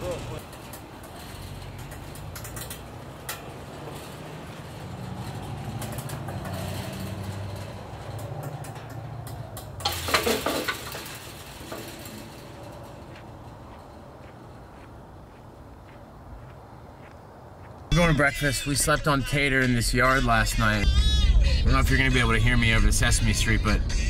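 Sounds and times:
chain-link gate rattling: 0.0 - 14.7.

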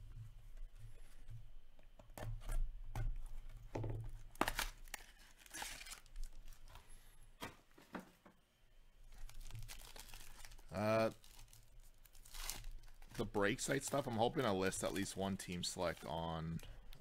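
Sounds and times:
foil wrapper crinkling and tearing: 4.2 - 6.7, 9.1 - 16.7.

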